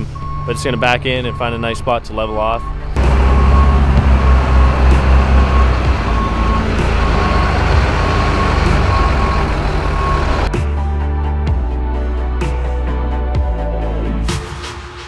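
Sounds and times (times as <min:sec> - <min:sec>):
diesel truck engine rumble: 0:00.0 - 0:10.5
reversing alarm beeps: 0:00.1 - 0:10.5.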